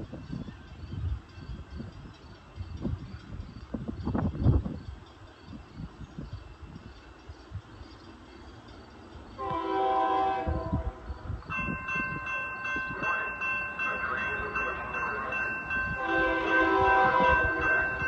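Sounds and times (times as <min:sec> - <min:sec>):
crossing warning bells ringing: 0:00.4 - 0:18.0
train horn chord: 0:09.4 - 0:11.2, 0:16.0 - 0:18.0.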